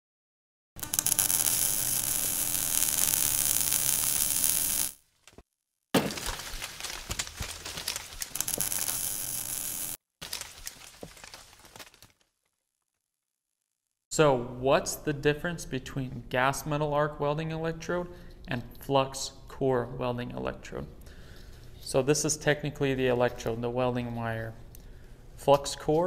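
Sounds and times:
welding arc crackling and hissing: 0.8 - 5.0, 8.2 - 10.0.

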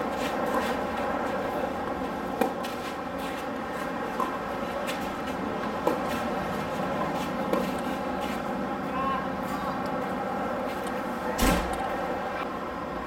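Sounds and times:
rackets hitting tennis ball: 0.0 - 8.6
steady background hum: 0.0 - 13.0.

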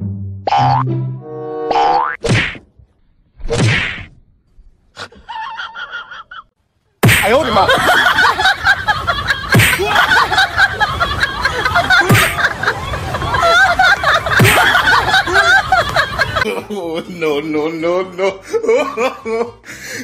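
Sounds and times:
sharp smack: 2.2 - 2.7, 3.4 - 4.2, 7.0 - 7.4, 9.5 - 9.8, 12.1 - 12.4
crowd gasping and laughing: 4.9 - 6.5, 7.2 - 17.0, 17.9 - 20.0.

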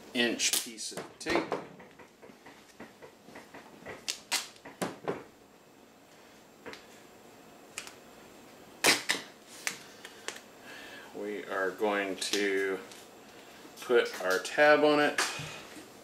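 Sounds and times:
tape ripping off roll: 4.0 - 4.7, 8.8 - 9.8.

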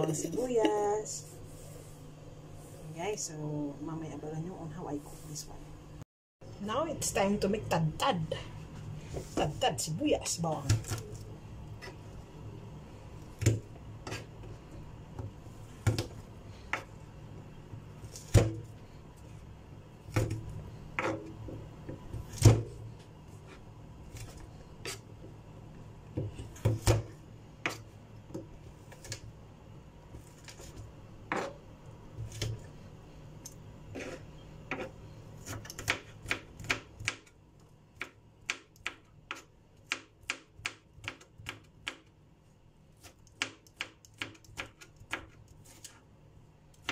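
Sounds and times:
knife chopping on cutting board: 21.0 - 22.8, 26.1 - 29.2, 30.2 - 31.6, 33.9 - 37.3.

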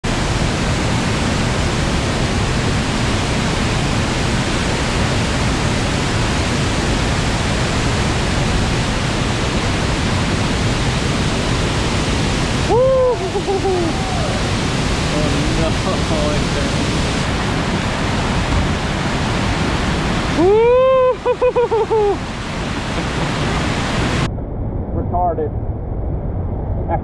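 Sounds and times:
waterfall roaring: 0.0 - 24.3
person shouting: 12.7 - 14.5, 20.4 - 22.2.

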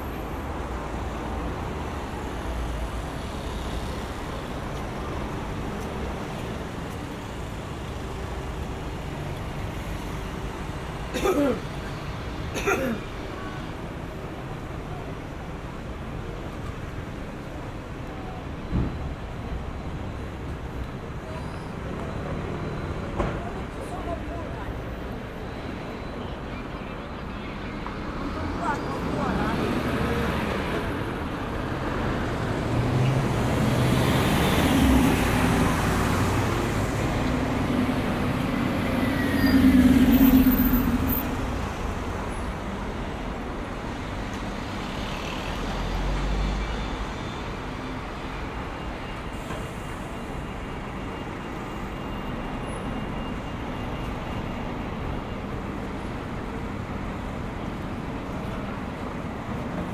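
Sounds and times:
traffic hum: 0.0 - 59.9
heavy vehicle passing: 31.7 - 42.3.

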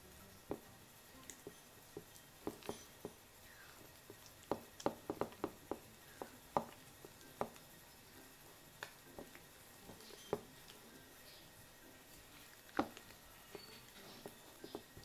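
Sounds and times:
spatula squishing wet mixture: 0.3 - 15.0
spatula tapping bowl: 0.5 - 3.2, 4.1 - 7.6.

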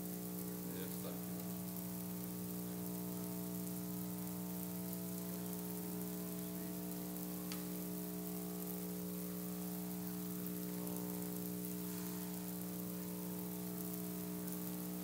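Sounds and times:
electrical hum with hiss: 0.0 - 15.0.

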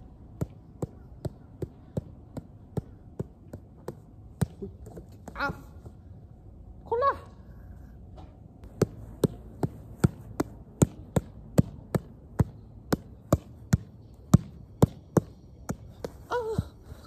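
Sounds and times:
shoe touching soccer ball: 8.6 - 16.2.

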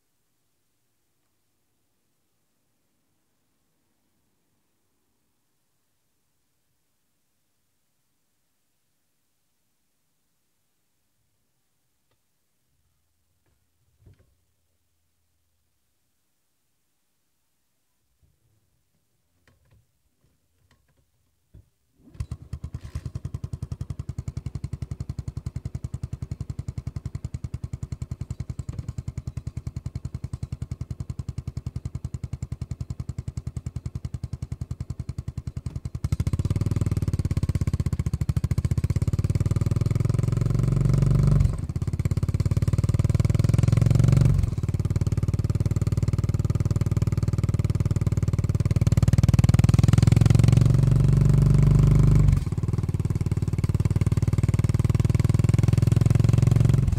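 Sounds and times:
motorcycle engine idling: 22.2 - 56.9.

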